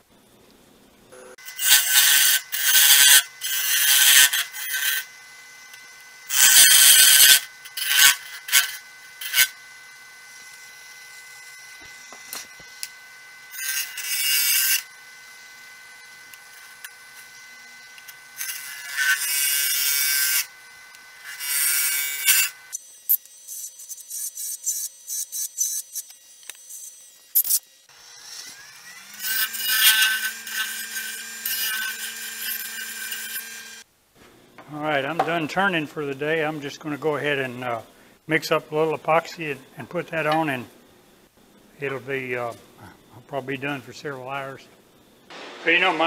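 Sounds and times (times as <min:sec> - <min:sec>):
wood lathe whine: 0:01.1 - 0:33.9
hollowing tool scraping wood: 0:01.3 - 0:05.1, 0:06.3 - 0:09.6, 0:13.5 - 0:14.9, 0:16.2 - 0:20.5, 0:28.2 - 0:33.8.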